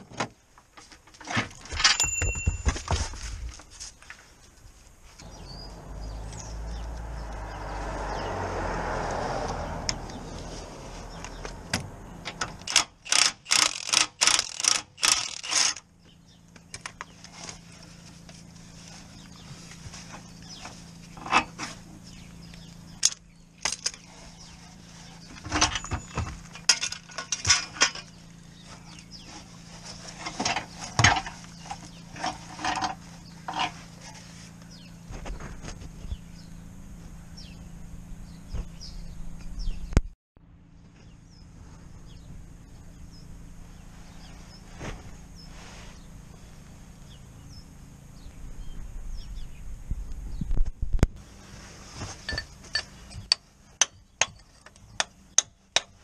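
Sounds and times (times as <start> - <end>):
ratchet wrench clicking: 12.6 - 15.8.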